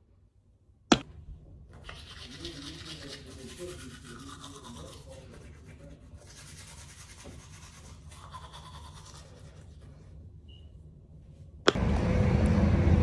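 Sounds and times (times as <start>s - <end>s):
toothbrush scrubbing teeth: 1.8s - 10.0s.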